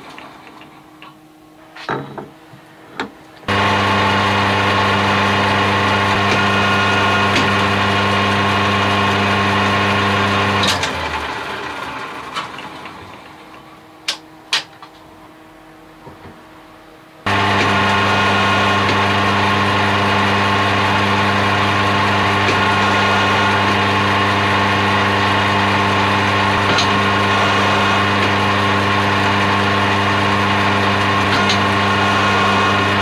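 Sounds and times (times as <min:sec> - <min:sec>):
metal lathe running: 0:03.5 - 0:13.6, 0:17.3 - 0:33.0.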